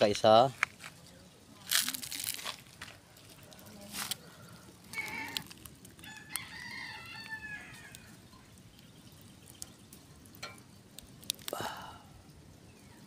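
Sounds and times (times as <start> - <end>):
rooster crowing: 4.9 - 8.2.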